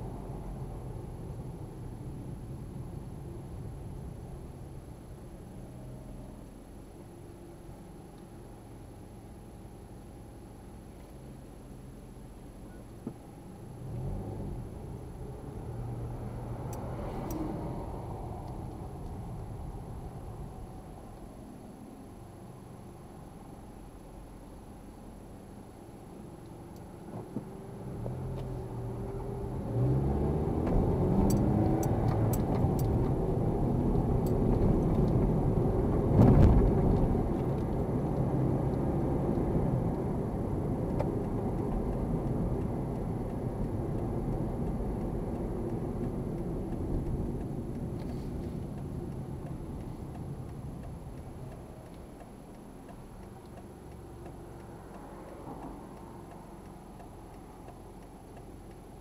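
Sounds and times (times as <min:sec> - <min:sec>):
road noise: 0:00.0 - 0:59.0
car engine accelerating: 0:13.4 - 0:59.0.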